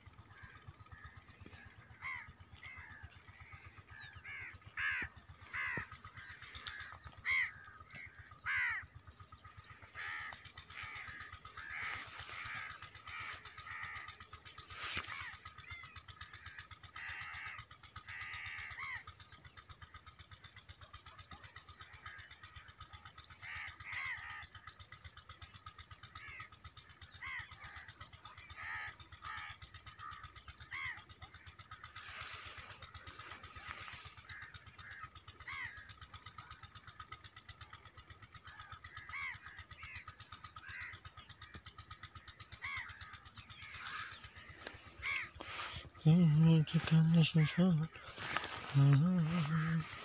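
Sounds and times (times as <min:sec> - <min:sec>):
low mechanical throb: 0:00.0 - 0:23.8
crows cawing: 0:00.0 - 0:50.0.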